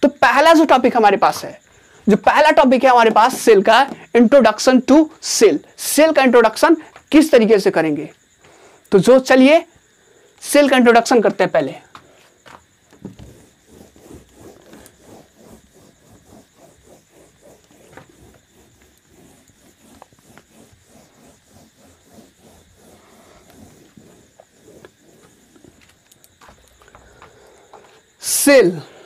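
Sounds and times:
eraser rubbing whiteboard: 2.5 - 4.1, 12.5 - 27.0.

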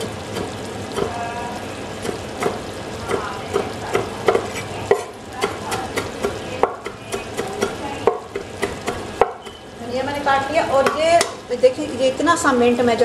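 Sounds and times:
pot sizzling: 0.0 - 13.0
knife chopping on wooden board: 2.0 - 9.6.

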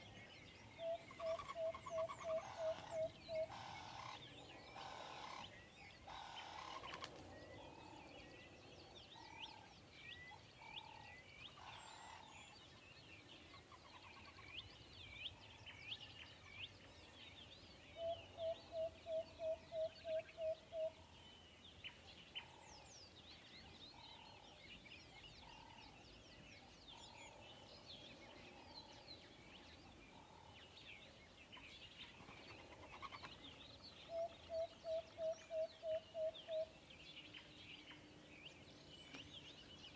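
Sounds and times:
lower repeated bird call: 0.0 - 8.0, 17.9 - 21.0, 34.0 - 36.8
birds chirping: 0.0 - 39.9.

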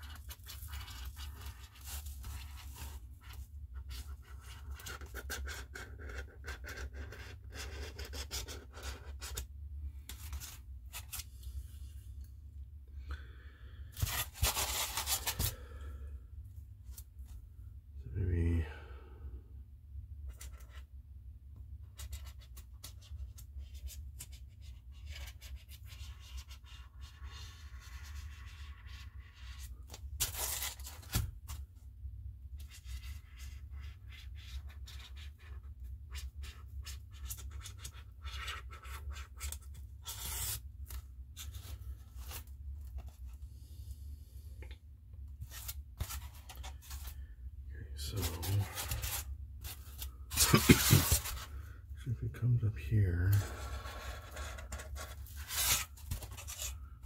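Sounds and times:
drawing tool scratching: 0.0 - 9.4, 32.7 - 40.6, 53.4 - 56.8.

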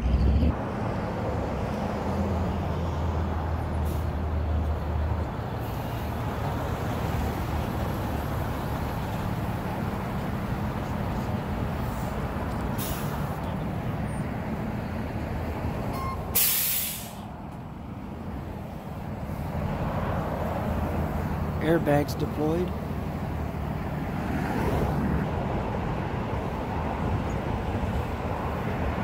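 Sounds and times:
diesel truck engine running: 0.0 - 24.3
short hiss: 16.4 - 17.3.

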